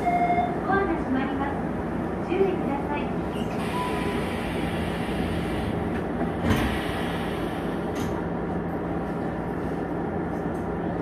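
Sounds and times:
electric train hum and rumble: 0.0s - 11.0s
train clunk: 5.9s - 7.1s, 7.8s - 8.3s.

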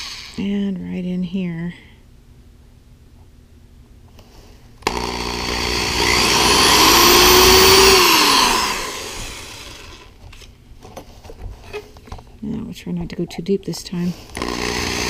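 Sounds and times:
cordless drill drilling into wood: 0.0s - 0.4s, 4.8s - 10.1s, 14.3s - 15.0s.

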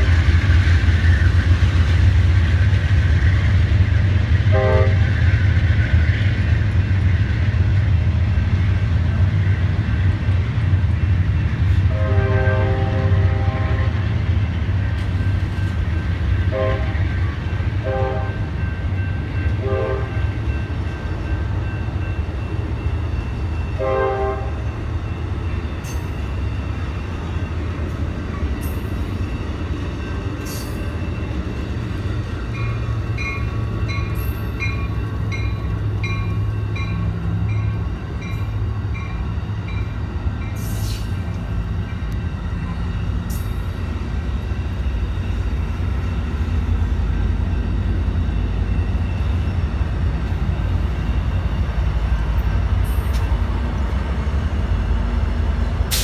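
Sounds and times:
passenger train rumbling past: 0.0s - 56.0s
train horn blasts: 4.5s - 5.1s, 11.8s - 14.1s, 16.5s - 17.1s, 17.8s - 18.6s, 19.6s - 20.2s, 23.8s - 24.6s.

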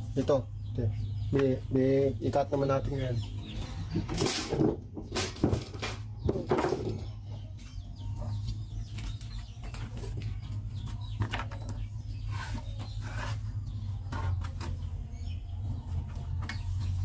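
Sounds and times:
chickens clucking: 0.0s - 17.0s
hand tools clattering: 4.0s - 7.1s.

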